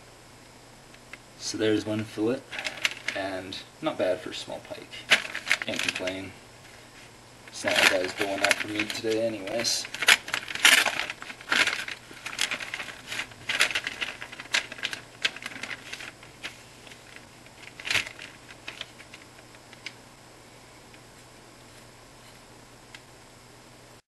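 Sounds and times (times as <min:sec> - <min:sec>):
newspaper crinkling: 0:02.5 - 0:03.3, 0:05.0 - 0:20.0.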